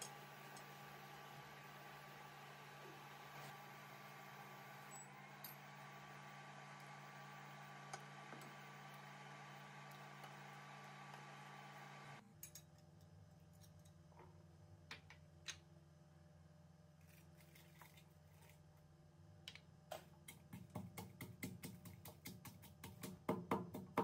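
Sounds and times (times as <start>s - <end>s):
pestle pounding in wooden mortar: 20.3s - 24.0s.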